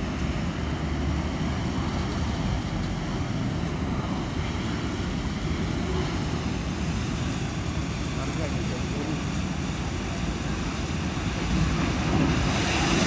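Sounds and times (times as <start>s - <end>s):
fire roaring: 0.0s - 13.0s.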